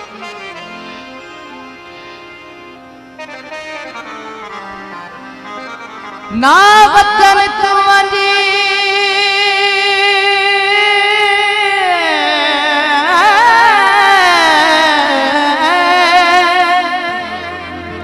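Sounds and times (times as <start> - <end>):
person singing with vibrato: 6.2 - 18.0.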